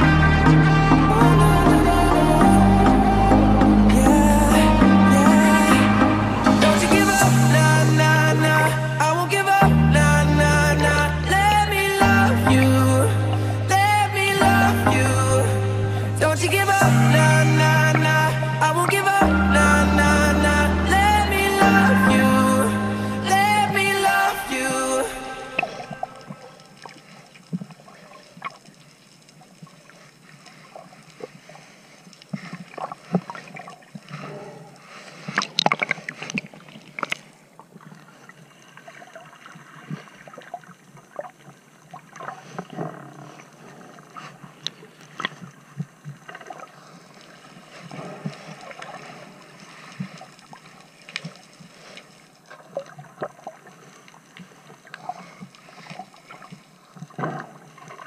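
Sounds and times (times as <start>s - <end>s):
underwater bubbling: 0.0s - 58.0s
underwater crackling clicks: 35.2s - 38.0s, 41.1s - 46.7s, 49.9s - 58.0s.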